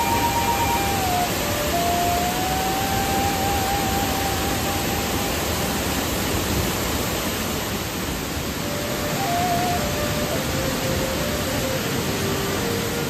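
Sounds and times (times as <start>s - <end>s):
thin high held tone: 0.0s - 6.4s
waterfall rushing: 0.0s - 13.0s.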